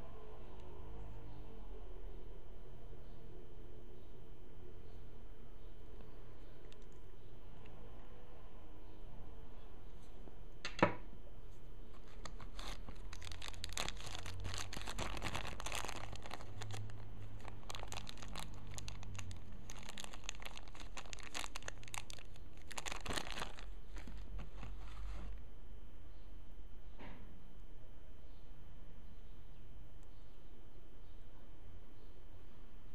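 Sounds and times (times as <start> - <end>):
plastic bag crinkling: 11.9 - 25.4.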